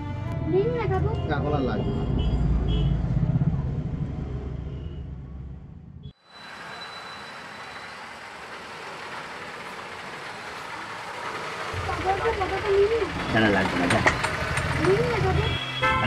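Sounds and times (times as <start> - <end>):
street traffic hiss: 6.2 - 15.5.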